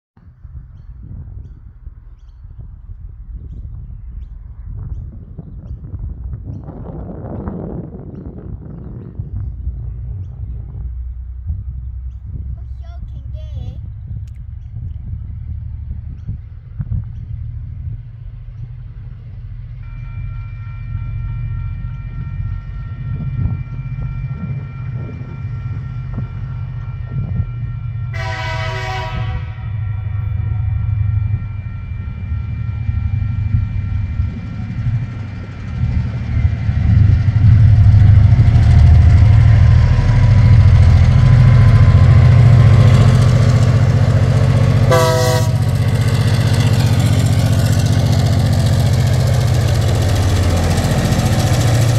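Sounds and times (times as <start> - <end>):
diesel locomotive engine rumble: 0.2 - 51.9
train horn: 19.8 - 35.0, 41.1 - 46.5.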